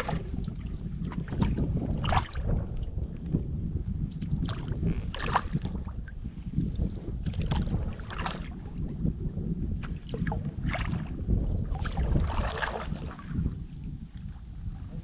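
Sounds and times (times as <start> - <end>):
paddle splashing in water: 0.0 - 3.0, 4.2 - 6.1, 6.7 - 8.8, 9.8 - 13.4
low rumble: 0.0 - 15.0.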